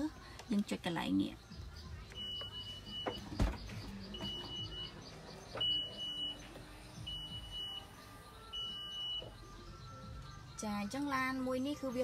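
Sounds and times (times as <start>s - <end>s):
vehicle warning beeps: 2.0s - 10.2s.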